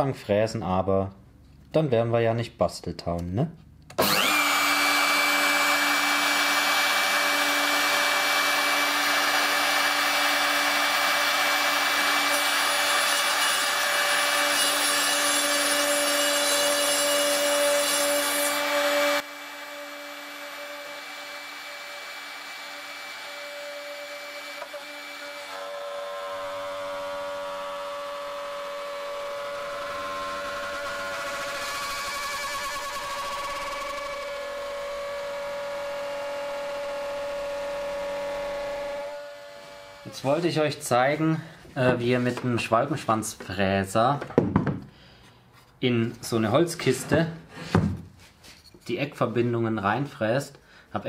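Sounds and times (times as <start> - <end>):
router whining cutting wood: 3.9 - 40.5.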